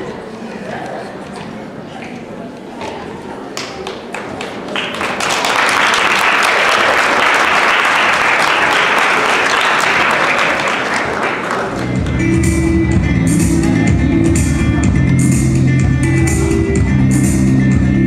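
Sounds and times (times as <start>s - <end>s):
audience applauding: 3.6s - 12.2s
music with heavy bass: 11.8s - 18.0s.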